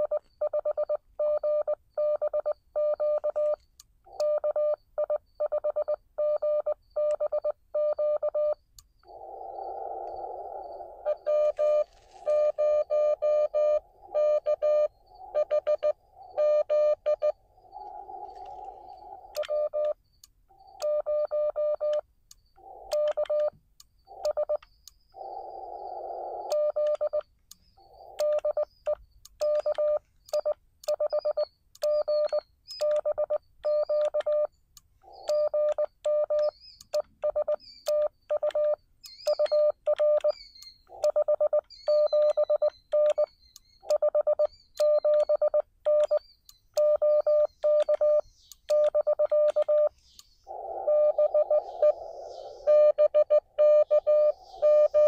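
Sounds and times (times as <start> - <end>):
morse code beeps: 0.0 - 8.6, 10.4 - 20.0, 20.6 - 25.4, 26.0 - 34.5, 35.1 - 46.2, 46.8 - 55.0
radio receiver hiss: 9.0 - 19.8, 25.2 - 26.9, 49.8 - 55.0.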